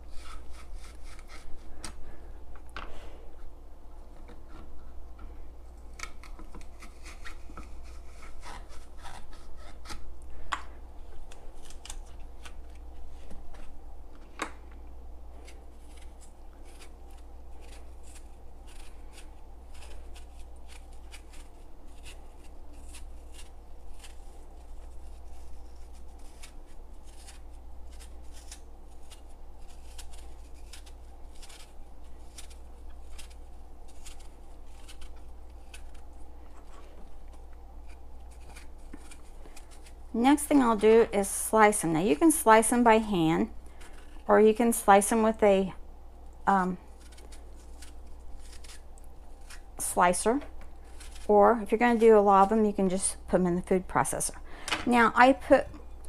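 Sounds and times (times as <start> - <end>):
knife scraping apple skin: 0.0 - 2.1, 5.6 - 10.1, 11.2 - 13.8, 15.3 - 43.0, 43.7 - 45.4, 46.4 - 52.7
steady low hum: 0.0 - 56.0.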